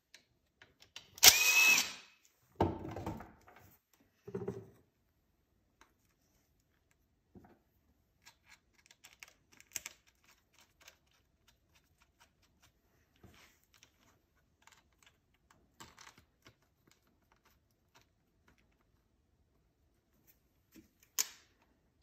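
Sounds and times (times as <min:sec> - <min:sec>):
screwdriver and metal parts clicking: 0:08.2 - 0:12.7, 0:14.6 - 0:18.1.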